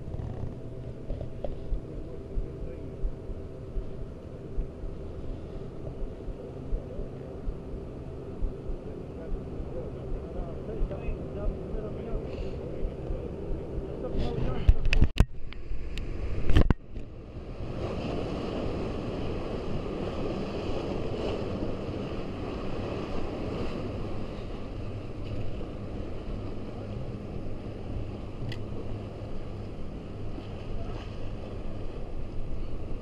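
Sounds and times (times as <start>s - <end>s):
wind on microphone: 0.0s - 33.0s
waves breaking against rocks: 16.2s - 32.9s.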